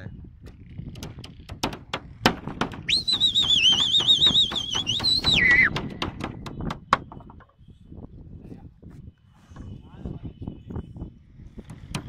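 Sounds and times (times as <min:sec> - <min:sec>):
sharp clicks and knocks: 0:00.5 - 0:07.5
man whistling through fingers: 0:02.9 - 0:05.8.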